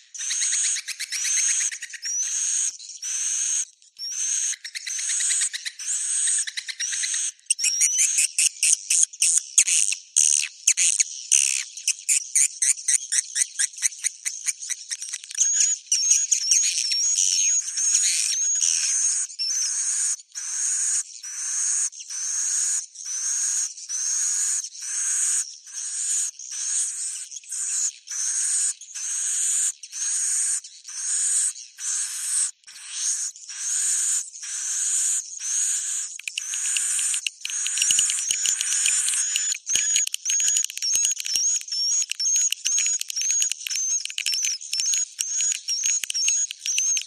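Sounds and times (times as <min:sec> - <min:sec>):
swiftlet twittering and chirring: 0:33.2 - 0:47.0
rapid chattering pulses and trill: 0:36.2 - 0:47.0.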